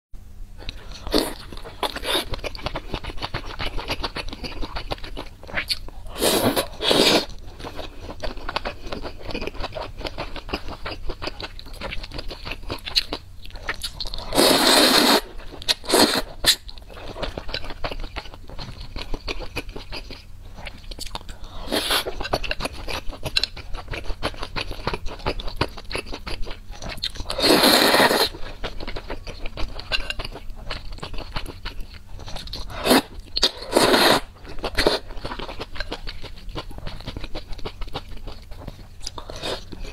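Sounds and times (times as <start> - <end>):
wet chewing and lip smacking: 7.3 - 14.3, 15.4 - 27.4, 34.4 - 39.9
loud slurps of noodles: 14.3 - 15.3, 27.4 - 28.3, 33.7 - 34.3.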